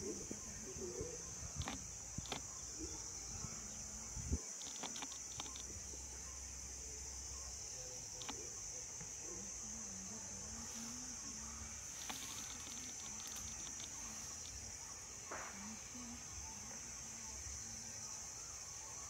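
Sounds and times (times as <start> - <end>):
insect chorus: 0.0 - 19.0
short clicks and snaps: 4.6 - 5.7.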